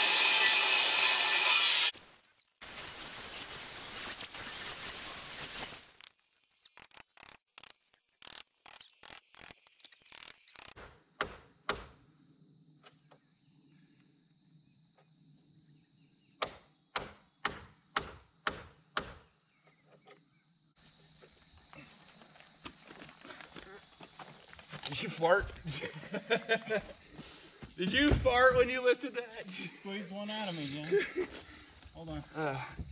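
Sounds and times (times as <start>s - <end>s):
hammer knocking on wood: 16.4s - 19.2s.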